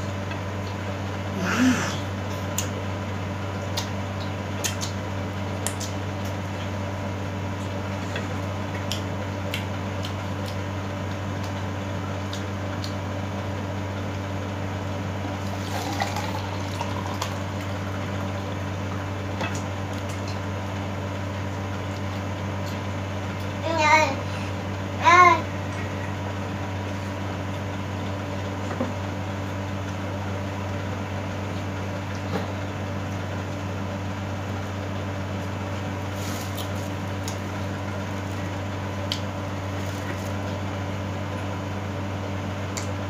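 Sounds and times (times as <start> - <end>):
eating clicks: 3.7 - 5.0
juice pouring into cup: 15.4 - 17.6.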